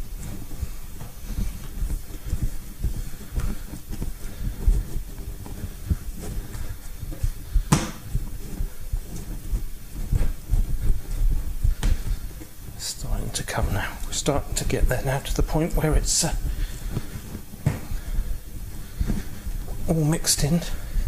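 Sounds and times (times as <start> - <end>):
dough thumping on wooden board: 7.6 - 8.1.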